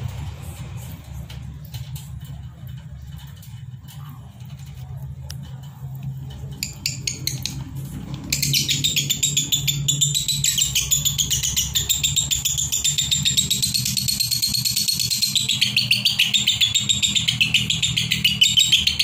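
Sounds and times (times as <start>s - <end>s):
lovebirds chattering: 5.9s - 19.0s.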